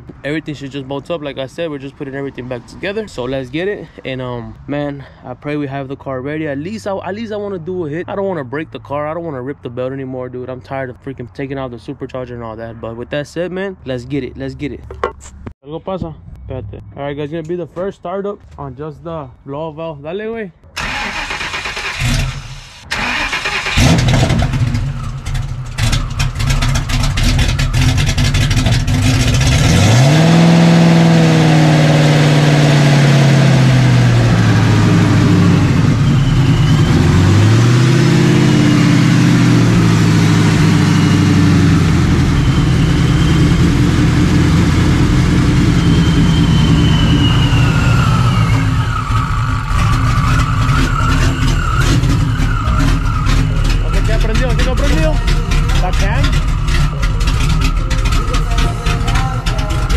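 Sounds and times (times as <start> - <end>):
engine cranking on starter: 20.8 - 29.6, 44.0 - 59.9
engine idling: 20.8 - 59.9
engine revving: 20.8 - 59.9.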